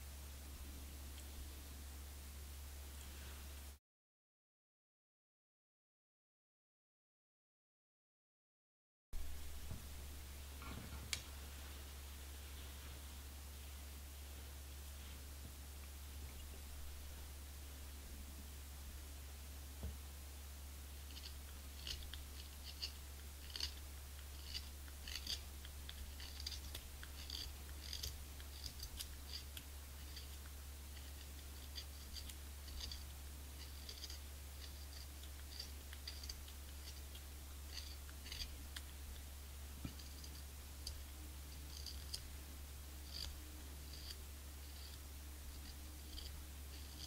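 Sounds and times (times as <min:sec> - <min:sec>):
knife shaving cane: 0:20.8 - 0:47.0.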